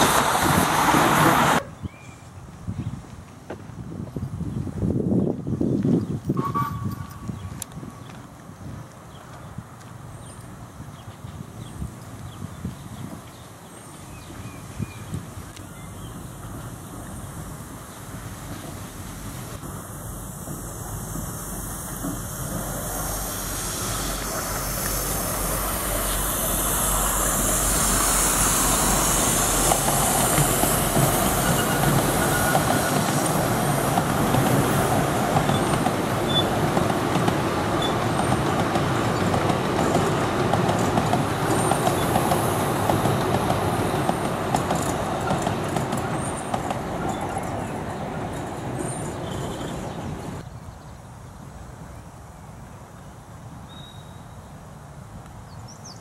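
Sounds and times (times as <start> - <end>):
train wheels clattering on track: 18.1 - 50.4.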